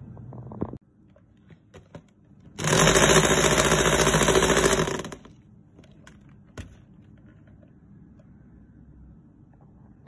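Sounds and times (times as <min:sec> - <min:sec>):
electric hand mixer whisking: 0:02.6 - 0:05.2.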